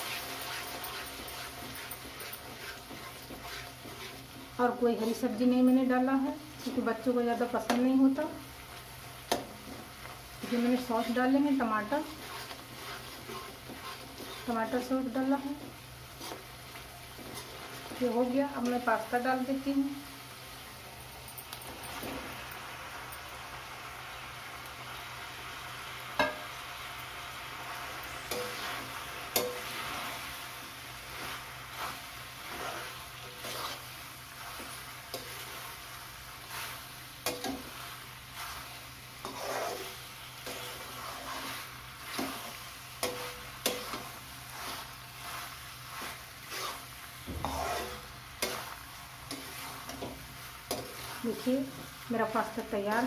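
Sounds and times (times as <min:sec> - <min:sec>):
metal ladle scraping metal pan: 0:00.0 - 0:04.4, 0:10.4 - 0:14.9, 0:31.2 - 0:35.6, 0:38.4 - 0:50.1
food sizzling: 0:00.0 - 0:53.0.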